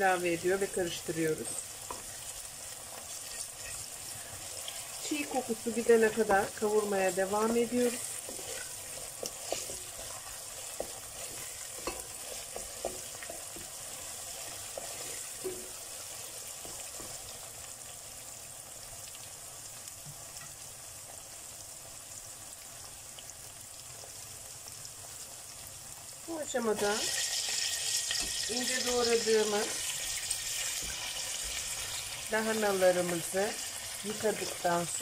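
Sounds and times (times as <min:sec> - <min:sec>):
food sizzling in hot oil: 0:00.0 - 0:35.0
wooden spoon scraping a pot: 0:01.7 - 0:17.3.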